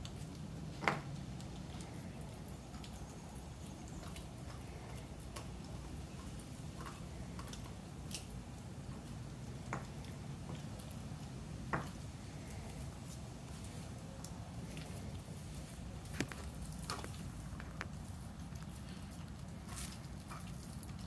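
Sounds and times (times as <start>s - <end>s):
low background noise: 0.0s - 21.0s.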